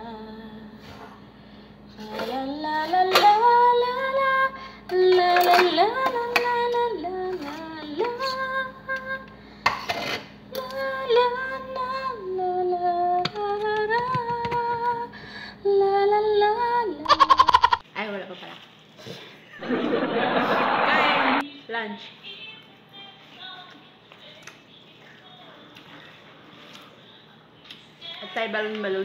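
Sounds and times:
woman singing unaccompanied: 0.0 - 0.8, 2.0 - 9.4, 10.5 - 17.2, 21.9 - 26.0, 27.0 - 29.0.

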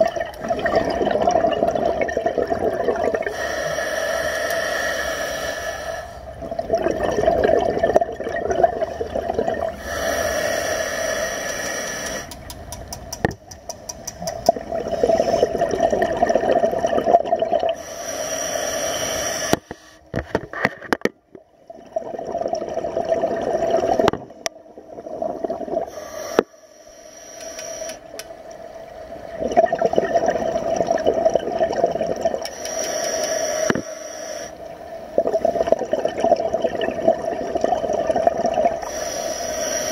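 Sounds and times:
exhaled bubbles burbling: 0.0 - 3.4, 6.3 - 9.9, 14.2 - 17.9, 21.2 - 26.5, 29.2 - 32.5, 34.6 - 39.0
regulator inhalation hiss: 3.3 - 6.3, 9.8 - 12.4, 17.8 - 20.1, 25.9 - 28.2, 32.5 - 34.6, 38.8 - 39.9.

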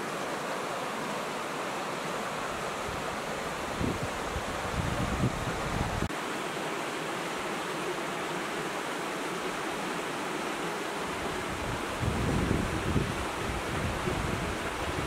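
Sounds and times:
wind buffeting microphone: 3.7 - 6.1, 11.3 - 15.0.

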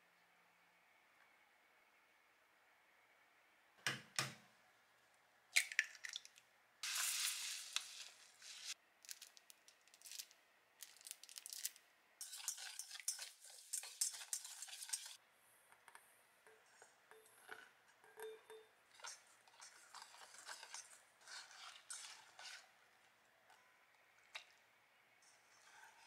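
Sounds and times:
sugar poured into bowl: 6.8 - 9.3
whisk beating in bowl: 12.2 - 15.2, 18.2 - 22.7.

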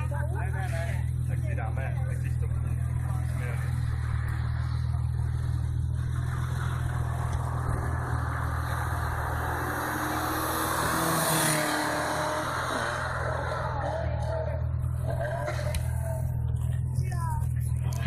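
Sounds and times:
car engine accelerating past: 2.9 - 16.8.

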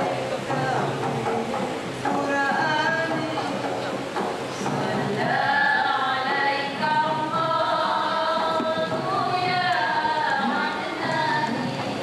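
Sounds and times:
women singing together: 0.0 - 12.0.

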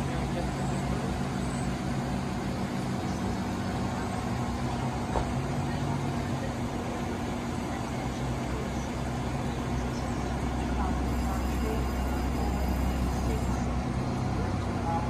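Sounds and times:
train equipment humming: 0.0 - 15.0.

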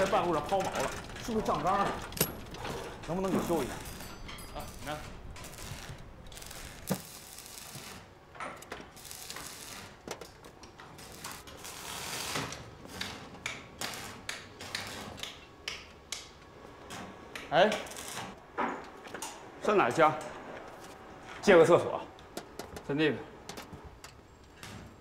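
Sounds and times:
metal tools clicking and ratcheting: 0.0 - 7.0.

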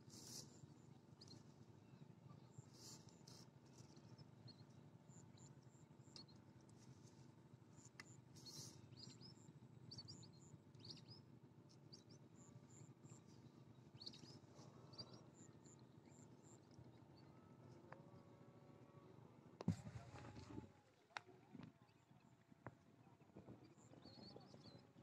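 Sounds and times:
faint bird chirps: 0.0 - 6.4, 7.8 - 18.4, 23.0 - 25.0.

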